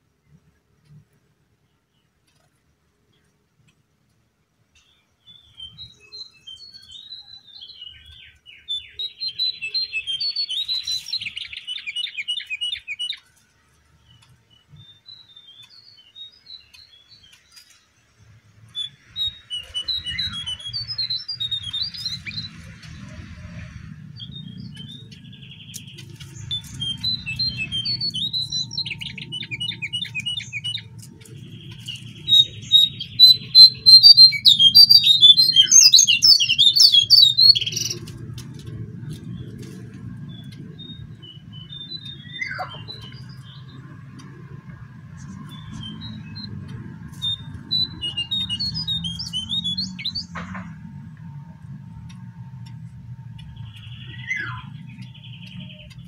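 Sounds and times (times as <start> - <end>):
bird chirps and trills: 4.8 - 56.0
low steady rumble: 37.5 - 56.0.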